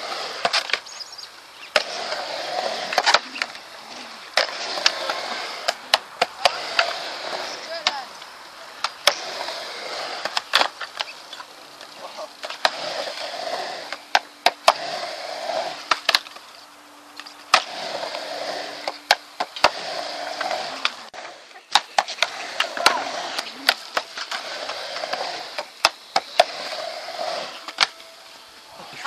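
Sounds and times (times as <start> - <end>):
skateboard clacks: 0.0 - 0.8, 1.7 - 3.6, 4.4 - 16.4, 17.1 - 28.1
skateboard wheels rolling on concrete: 0.0 - 29.0.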